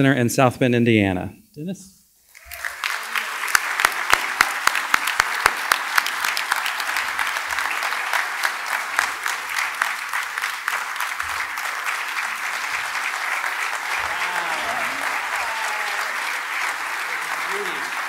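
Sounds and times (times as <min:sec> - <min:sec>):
audience applauding: 0:02.3 - 0:18.0
close hand claps: 0:02.4 - 0:18.0.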